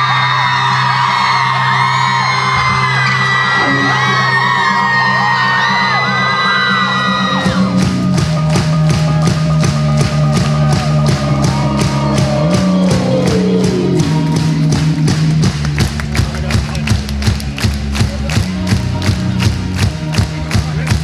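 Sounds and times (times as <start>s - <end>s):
crowd whooping and singing: 0.0s - 15.5s
bass notes: 0.0s - 21.0s
drum beat: 2.6s - 21.0s.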